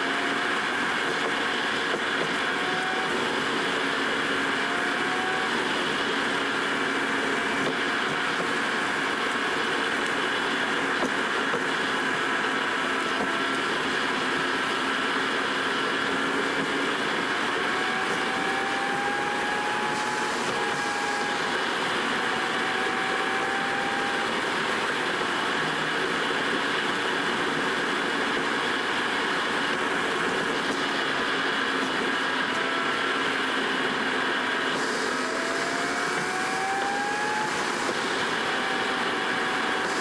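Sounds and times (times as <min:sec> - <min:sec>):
car engine and tyre road noise: 0:00.0 - 0:40.0
faint whine: 0:16.3 - 0:40.0.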